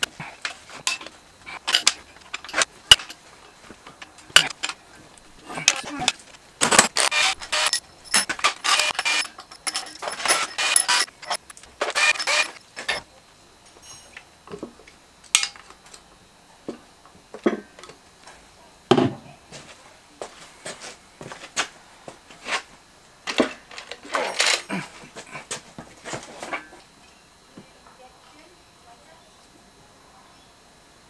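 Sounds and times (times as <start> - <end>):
ratchet wrench clicking: 7.0 - 12.6
metal clinks: 7.5 - 11.4.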